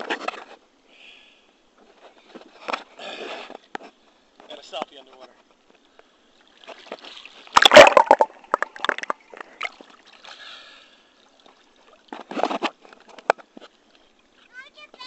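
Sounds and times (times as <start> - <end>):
pool water splashing: 6.2 - 14.7.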